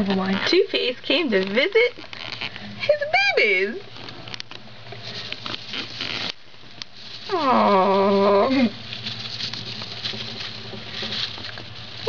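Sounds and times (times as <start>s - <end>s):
mice scrabbling in bedding: 3.8s - 12.0s.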